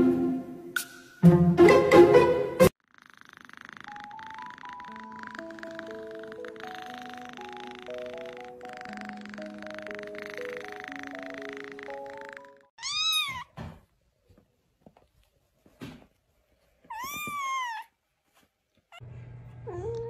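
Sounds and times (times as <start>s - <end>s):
music: 0.0s - 2.7s, 4.2s - 12.7s
kitten meowing: 3.2s - 13.5s, 16.9s - 17.9s.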